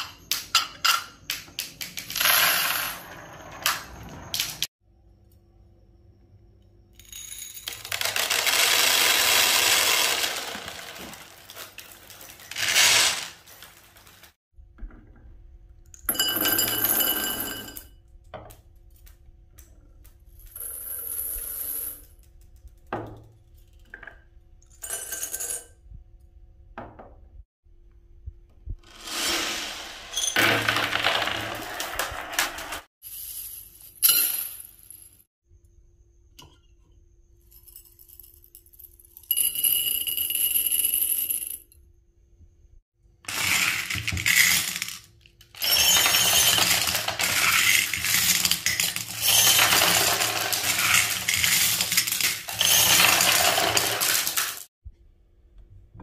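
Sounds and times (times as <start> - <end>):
marbles pouring and clattering: 7.7 - 14.3, 28.9 - 32.9, 45.6 - 54.7.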